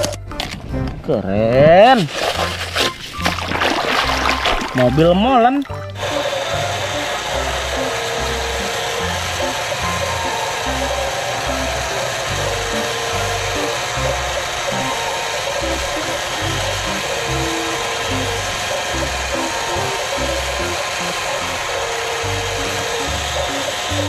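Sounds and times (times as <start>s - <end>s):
background music with bass line: 0.0s - 14.9s
small motor whirring: 5.8s - 24.0s.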